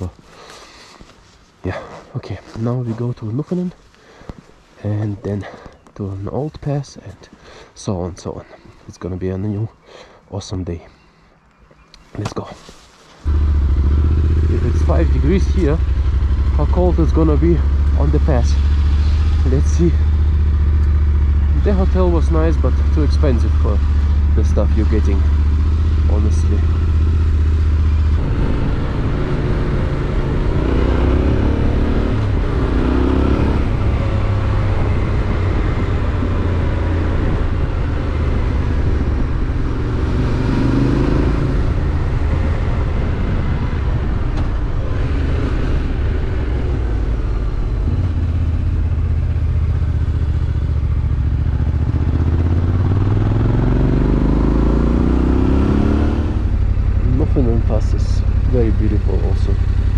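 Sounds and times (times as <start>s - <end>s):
motorcycle engine accelerating: 13.2s - 59.9s
wind noise: 27.2s - 49.0s.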